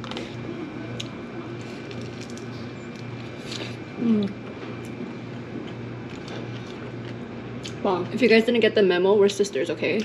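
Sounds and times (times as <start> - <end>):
chewing: 0.9 - 7.8
person humming mmm: 3.6 - 4.4.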